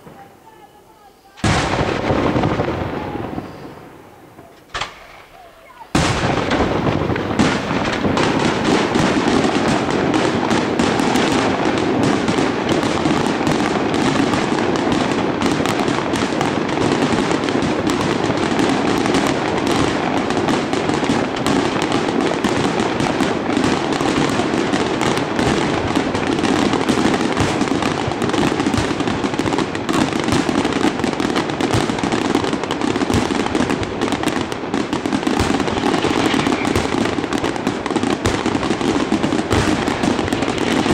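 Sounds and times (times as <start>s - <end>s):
fireworks bursting: 0.0s - 40.9s.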